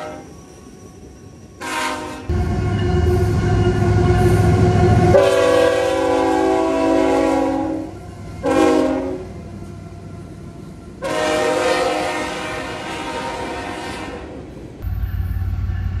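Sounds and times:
locomotive horn blasts: 0.0s - 0.3s, 1.6s - 9.8s, 11.0s - 14.4s
passing train rumble: 0.0s - 16.0s.

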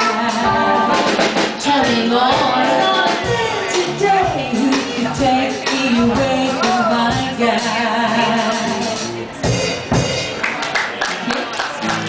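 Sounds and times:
woman singing: 0.0s - 9.1s
live band with drum kit: 0.0s - 12.0s.

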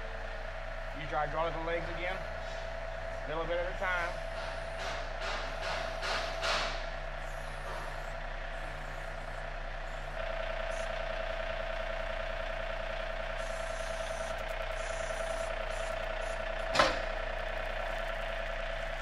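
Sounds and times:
hydraulics whining: 0.0s - 19.0s
tractor diesel engine running: 0.0s - 19.0s
sharp clunk: 16.7s - 17.1s.

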